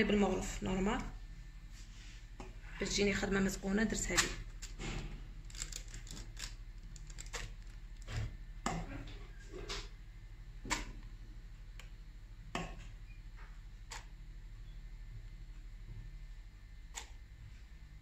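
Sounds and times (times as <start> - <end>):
spoon tapping plastic piping bag: 4.0 - 8.1.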